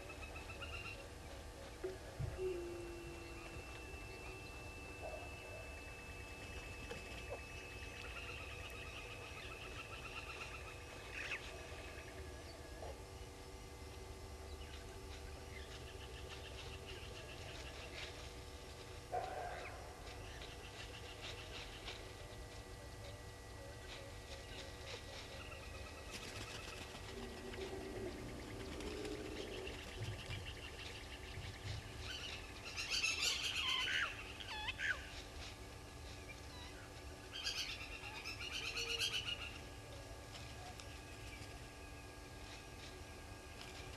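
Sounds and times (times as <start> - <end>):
low animal call: 0.0 - 13.1, 27.0 - 30.4
birds calling with high notes: 0.0 - 13.4, 19.2 - 43.9
steady low hum: 0.0 - 43.9.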